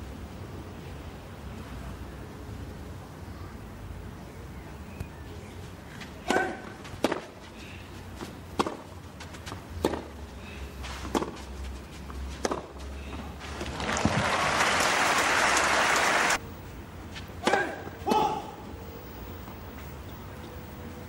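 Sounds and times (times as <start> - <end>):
tennis ball hit by racquet: 6.2 - 7.4, 8.5 - 8.9, 9.8 - 10.2, 11.0 - 11.5, 12.4 - 12.8, 17.4 - 18.3.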